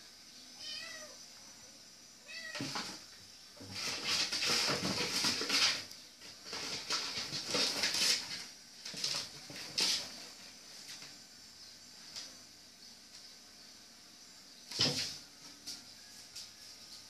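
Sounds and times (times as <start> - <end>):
kitten scratching in a box: 3.6 - 10.4.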